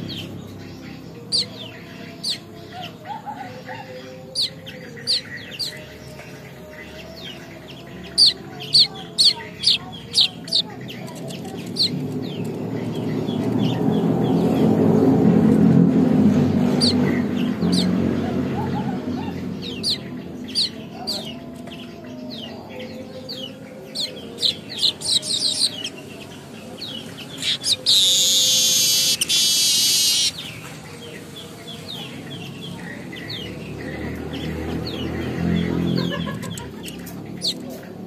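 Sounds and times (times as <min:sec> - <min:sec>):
wheezy buzzing bird trill: 0:00.0 - 0:15.2, 0:16.4 - 0:30.6
bird chirping: 0:00.0 - 0:38.0.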